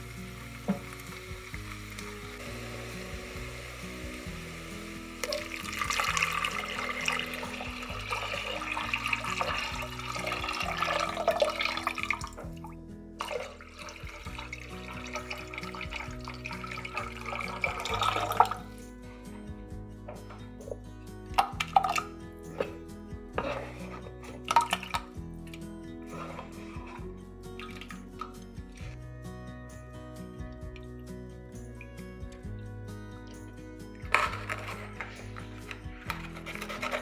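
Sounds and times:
liquid pouring into a pot: 0.6s - 12.6s, 13.2s - 18.7s, 21.4s - 22.1s, 24.4s - 25.1s, 34.1s - 37.0s.

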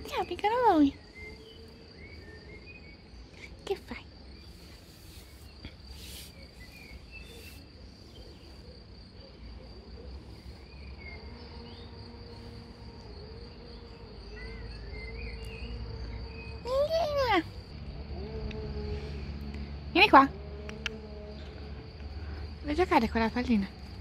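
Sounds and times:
insects trilling: 0.0s - 24.0s
bird chirps: 4.3s - 11.9s, 13.7s - 17.4s.

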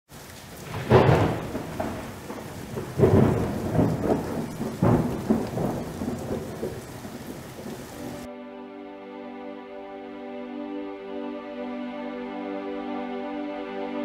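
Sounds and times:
steady rain hiss: 0.1s - 8.3s
thunder claps: 0.4s - 8.3s
soft music: 7.9s - 14.0s.

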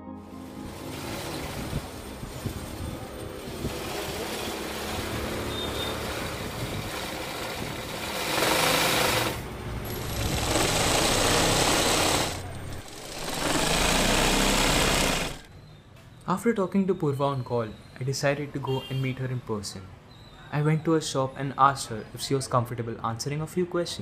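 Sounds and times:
sewing machine stitching: 0.8s - 15.5s.

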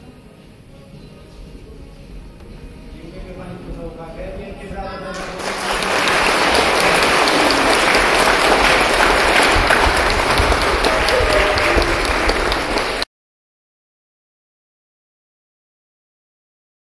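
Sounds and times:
audience applauding: 5.1s - 13.1s.

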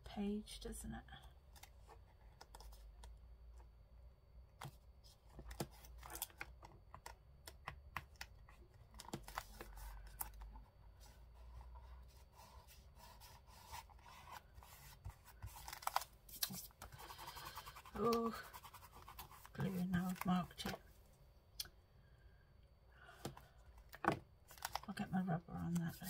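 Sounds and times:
paper and tools handled: 8.3s - 20.8s, 24.4s - 25.0s.

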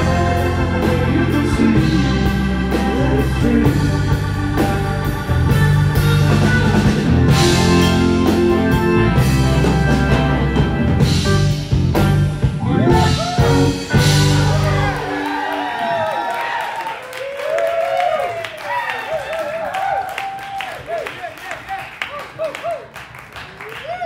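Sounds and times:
live rock band playing: 0.0s - 16.1s
electric guitar: 0.0s - 16.2s.

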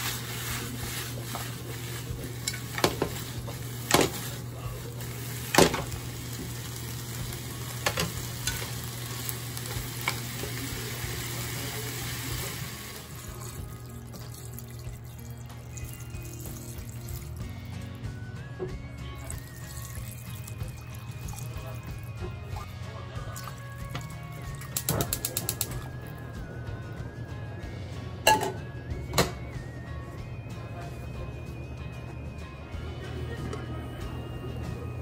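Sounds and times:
food sizzling in a frying pan: 0.0s - 17.4s
water pouring into a pot: 0.0s - 18.0s, 19.2s - 25.9s.

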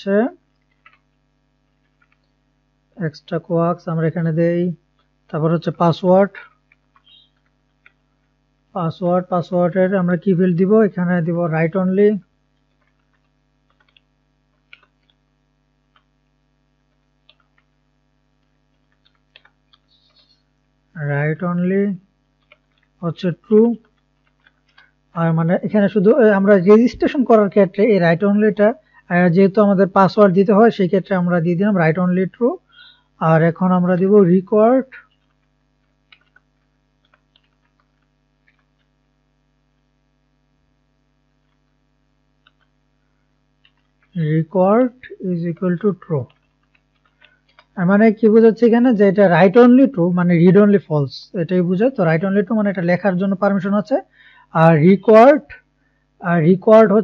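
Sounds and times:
low electrical hum: 0.0s - 57.0s
keyboard keystrokes: 12.6s - 15.2s, 22.4s - 23.0s, 36.1s - 38.9s, 42.4s - 42.7s, 46.2s - 47.8s.

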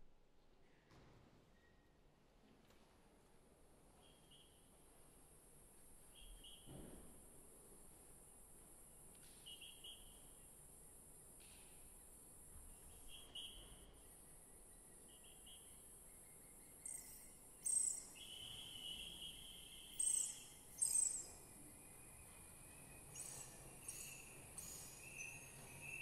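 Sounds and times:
shrill chirps: 16.8s - 18.2s, 19.9s - 21.4s.

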